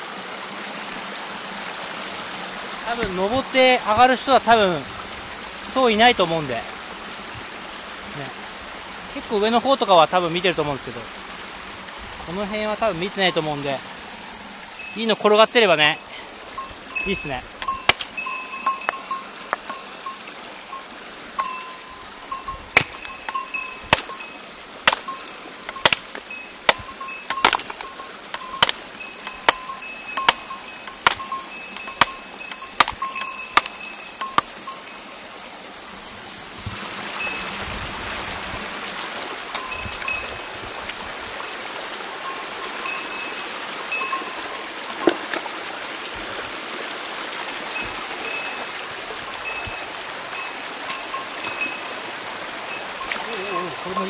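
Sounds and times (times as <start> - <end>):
small bell jingling: 14.8 - 24.4, 25.0 - 35.0, 37.2 - 37.5, 39.5 - 40.6, 42.2 - 44.7, 47.8 - 48.7, 49.4 - 51.9, 52.7 - 54.0.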